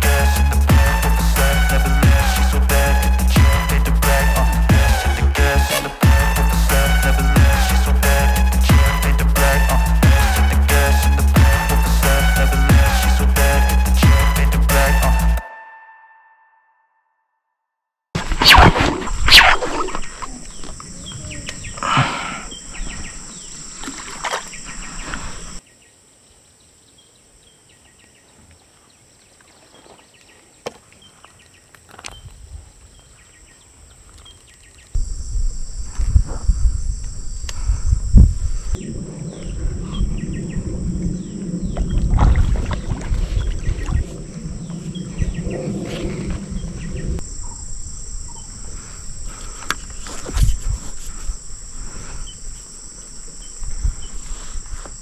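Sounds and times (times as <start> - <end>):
wind rumble on microphone: 35.0 - 52.6, 53.4 - 55.0.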